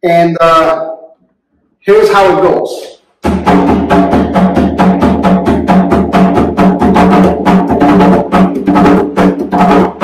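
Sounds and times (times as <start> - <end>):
barrel drum played by hand: 3.2 - 10.0.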